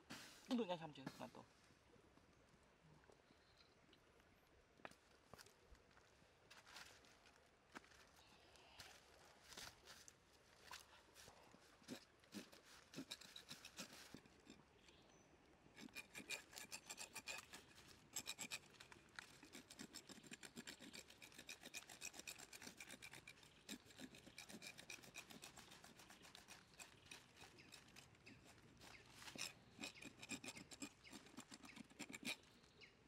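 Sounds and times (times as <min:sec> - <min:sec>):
knife scraping scaly skin: 0:11.8 - 0:14.6, 0:15.8 - 0:32.5.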